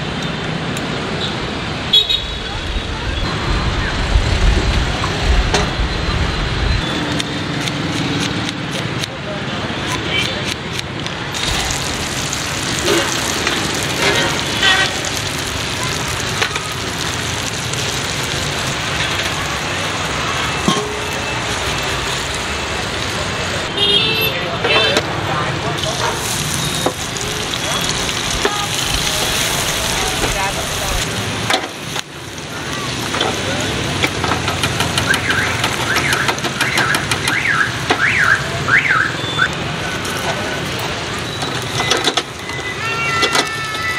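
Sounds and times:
passing traffic: 0.0s - 43.9s
gas burner hiss: 11.3s - 23.6s.

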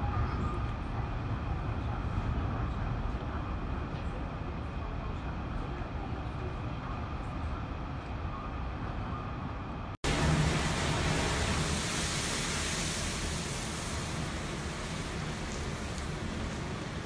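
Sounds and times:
wind rushing with rain: 0.0s - 17.0s
gale-force wind blowing spray: 10.0s - 17.0s.

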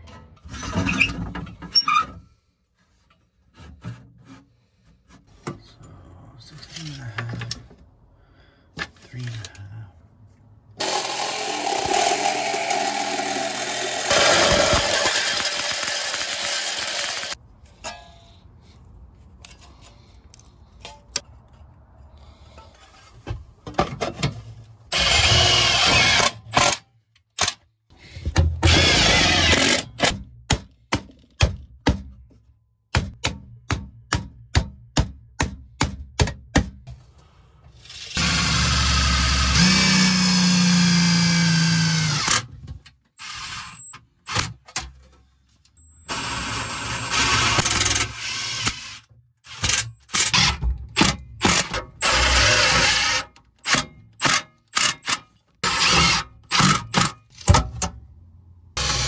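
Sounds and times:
cordless drill running: 10.8s - 17.4s, 25.0s - 26.3s, 28.7s - 29.8s, 38.1s - 42.4s, 58.8s - 59.0s.

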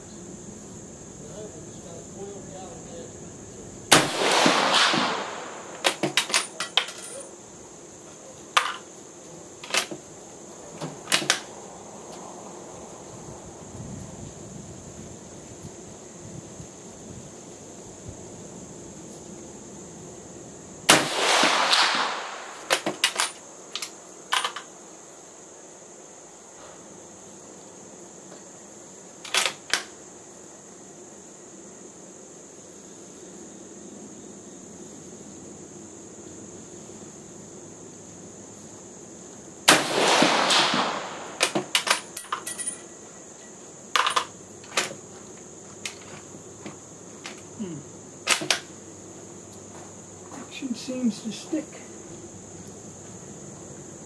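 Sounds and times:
rifle shot echoing: 3.9s - 6.0s, 20.9s - 22.8s, 39.7s - 41.9s.

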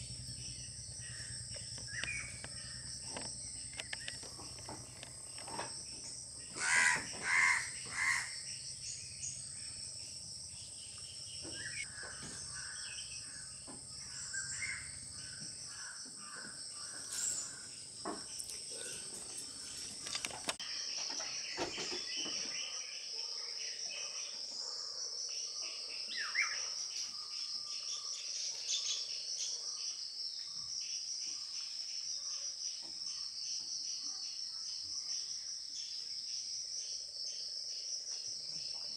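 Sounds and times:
loud harsh insect calls: 0.0s - 9.8s, 10.6s - 22.1s
high-pitched insect chorus: 0.0s - 38.9s
sharp clicks: 1.6s - 5.1s
faint chirps: 16.8s - 29.6s.

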